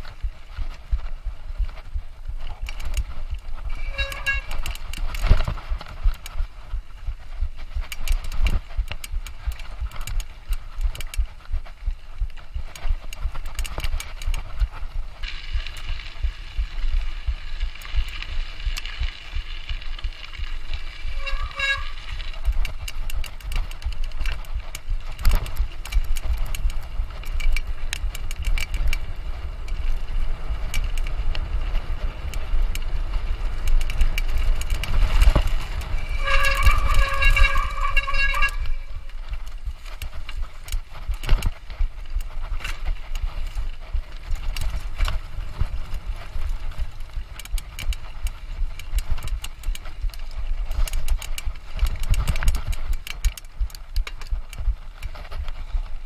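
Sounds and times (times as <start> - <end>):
bike rattling clicks: 0.0 - 56.0
wind and tyres rumbling: 0.0 - 56.0
high tonal squeals: 3.7 - 4.6, 35.8 - 39.3.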